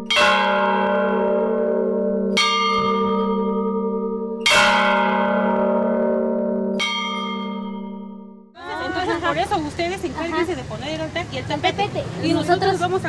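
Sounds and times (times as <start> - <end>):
bell tolling slowly: 0.0 - 8.5.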